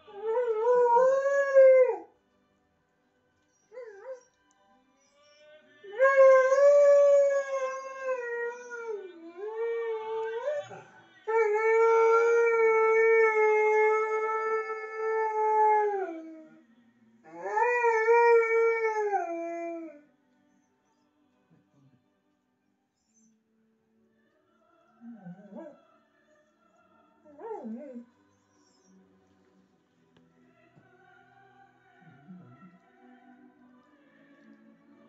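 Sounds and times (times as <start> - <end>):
dog howling: 5.9 - 16.5, 27.3 - 28.1.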